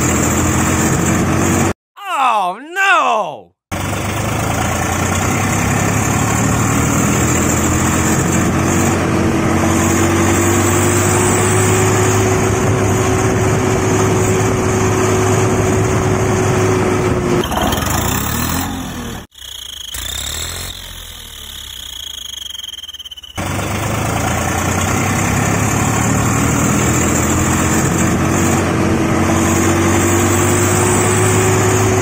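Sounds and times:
tractor engine running: 0:12.2 - 0:29.1.

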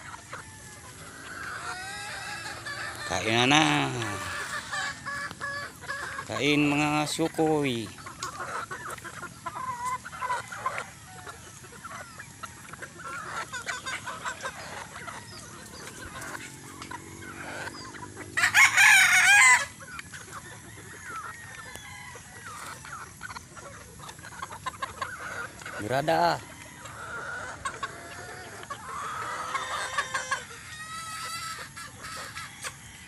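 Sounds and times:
chickens clucking: 0:00.0 - 0:33.0
rooster crowing loudly: 0:18.4 - 0:19.8.

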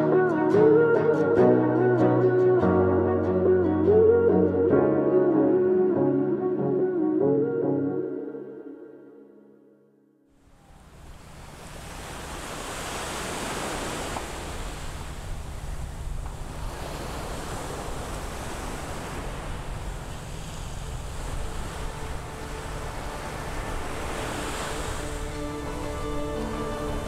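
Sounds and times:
ocean surf washing: 0:10.4 - 0:27.0.

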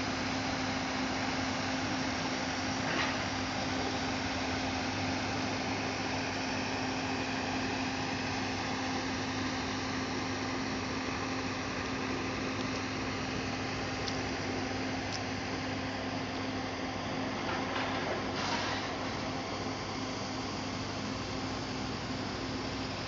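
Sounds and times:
machine hum: 0:00.0 - 0:23.0.

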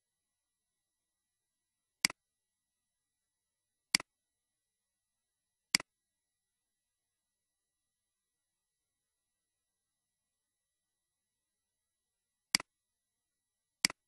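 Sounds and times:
computer mouse clicks: 0:13.8 - 0:14.0.

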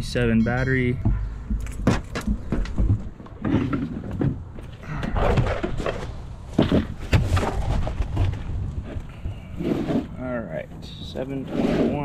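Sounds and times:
battery handling clatter and knocks: 0:01.1 - 0:04.8.

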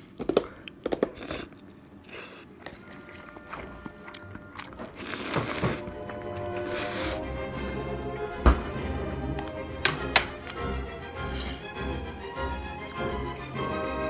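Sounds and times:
slurping noodles: 0:01.1 - 0:08.0, 0:11.2 - 0:11.8
background music: 0:02.8 - 0:14.0.

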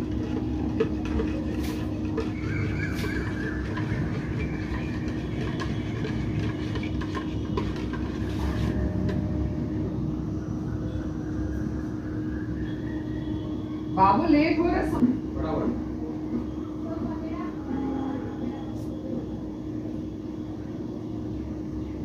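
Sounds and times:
constant hum: 0:00.0 - 0:22.0
steady low rumble: 0:08.7 - 0:12.4.

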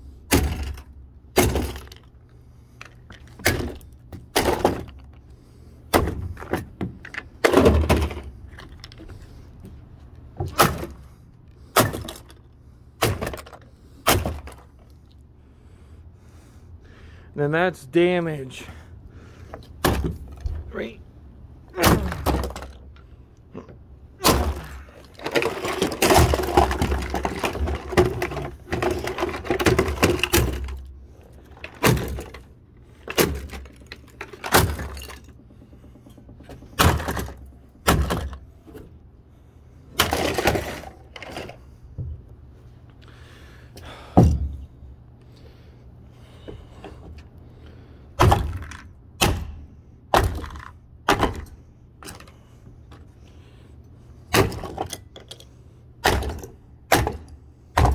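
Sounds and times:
sledgehammer smashing plastic: 0:00.3 - 0:02.1, 0:03.3 - 0:05.1, 0:05.9 - 0:08.4, 0:10.4 - 0:12.4, 0:13.0 - 0:14.8, 0:19.8 - 0:20.4, 0:21.8 - 0:22.9, 0:24.2 - 0:35.4, 0:36.5 - 0:38.4, 0:40.0 - 0:41.6, 0:48.2 - 0:52.3, 0:54.3 - 0:55.0, 0:56.0 - 0:57.9
debris crashing and rattling: 0:24.2 - 0:38.4, 0:40.0 - 0:41.7.

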